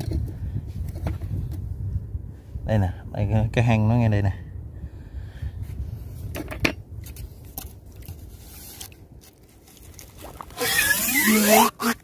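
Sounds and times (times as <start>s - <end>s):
faint scrapes: 8.0s - 11.2s.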